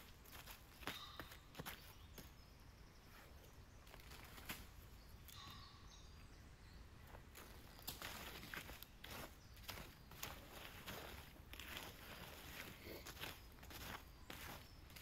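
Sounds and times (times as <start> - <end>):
faint short bird chirps: 5.3 - 6.2.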